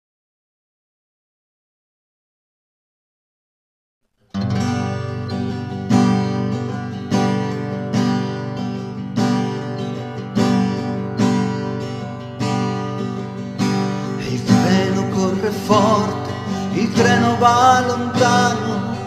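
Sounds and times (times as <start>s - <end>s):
acoustic guitar strummed chords: 4.3s - 19.0s.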